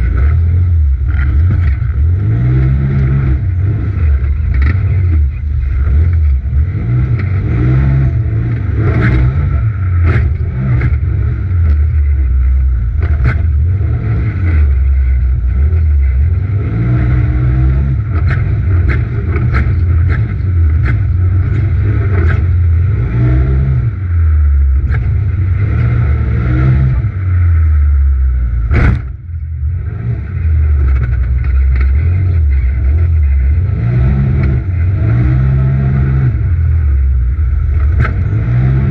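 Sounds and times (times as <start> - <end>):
turbocharged engine revving: 0.0 - 38.9
sharp knock: 28.7 - 29.2.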